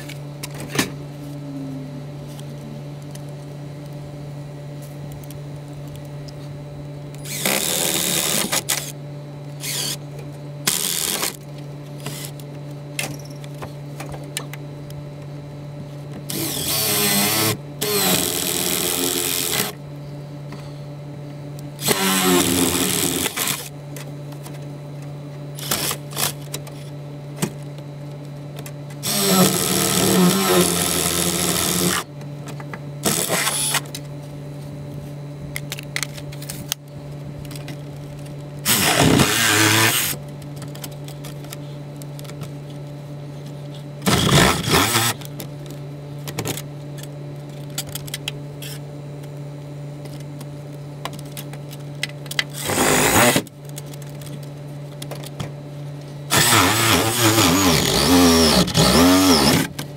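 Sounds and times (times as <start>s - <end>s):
low hum: 0.0s - 59.9s
cordless drill drilling into wood: 7.2s - 8.9s, 9.6s - 10.0s, 16.3s - 19.8s, 21.8s - 23.7s, 25.6s - 26.3s, 29.0s - 32.1s, 33.0s - 33.8s, 38.7s - 40.2s, 44.0s - 45.2s, 52.6s - 53.4s, 56.3s - 59.7s.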